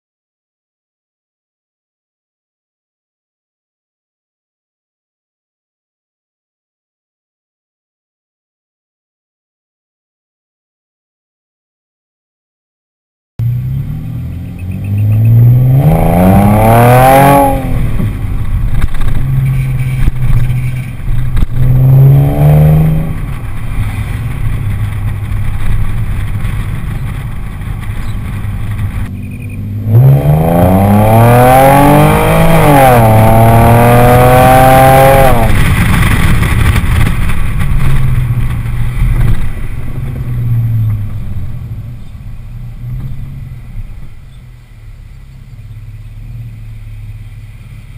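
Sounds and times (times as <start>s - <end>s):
car exhaust revving: 13.4s - 47.9s.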